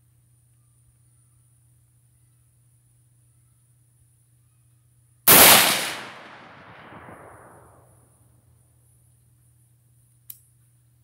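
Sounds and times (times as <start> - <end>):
rifle shot echo: 5.3 - 7.9.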